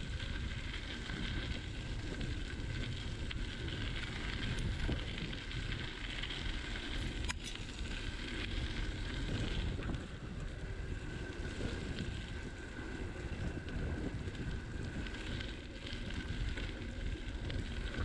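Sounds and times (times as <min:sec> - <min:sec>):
bicycle tyres on gravel: 0:00.0 - 0:18.0
wind buffeting microphone: 0:00.0 - 0:18.0.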